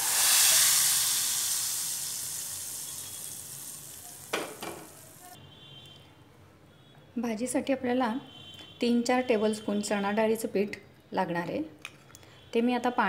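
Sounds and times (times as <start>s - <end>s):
hot oil sizzling: 0.0s - 5.4s.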